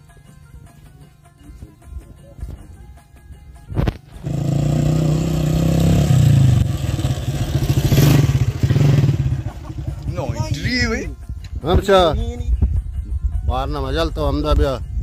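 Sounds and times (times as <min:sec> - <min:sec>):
motorcycle engine revving: 0:04.1 - 0:10.8.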